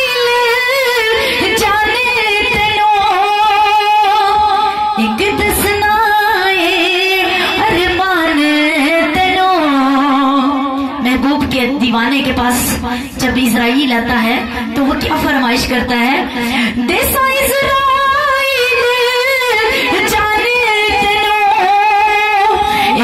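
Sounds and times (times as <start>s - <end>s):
woman singing devotional song: 0.0s - 23.0s.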